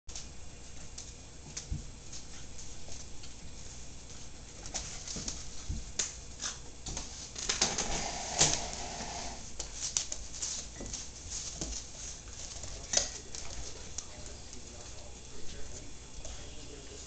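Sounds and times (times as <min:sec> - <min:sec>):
puppies scuffling: 0:00.1 - 0:17.0
claws clicking on wooden floor: 0:09.6 - 0:14.6.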